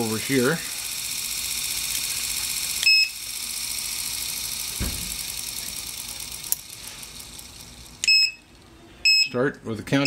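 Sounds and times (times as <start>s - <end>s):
treadmill motor whine: 0.0s - 9.2s
dull thump: 4.8s - 5.2s.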